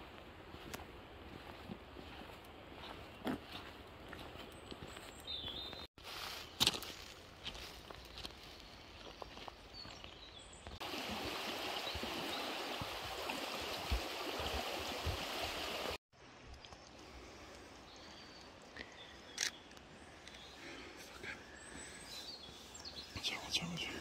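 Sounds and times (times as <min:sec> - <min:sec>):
rushing river water: 0:10.8 - 0:16.0.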